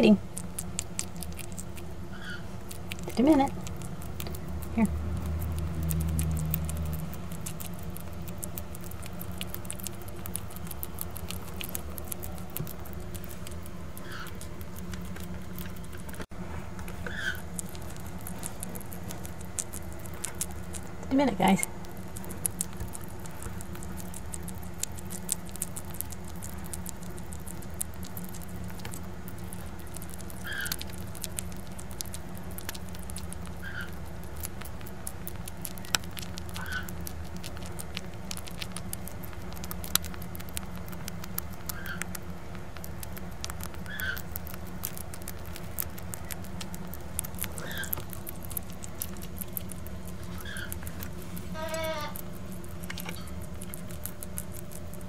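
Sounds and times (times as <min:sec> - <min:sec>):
bats crunching mealworms: 0:00.0 - 0:55.0
steady low hum: 0:00.0 - 0:55.0
bat squeaks: 0:02.1 - 0:02.5, 0:17.1 - 0:17.5, 0:30.4 - 0:30.8, 0:43.8 - 0:44.3, 0:50.3 - 0:50.8.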